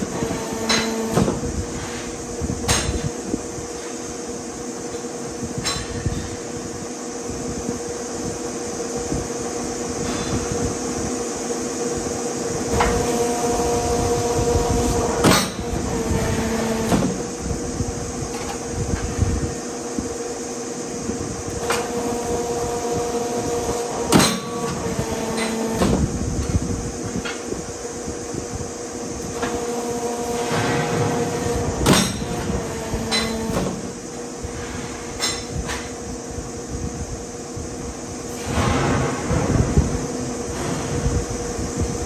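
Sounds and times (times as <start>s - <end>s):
press running hum: 0.0s - 42.0s
loud metal bang: 38.4s - 41.1s.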